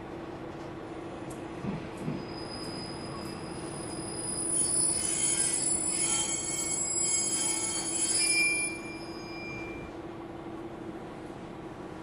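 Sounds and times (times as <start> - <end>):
train wheels squealing: 2.0 - 10.0.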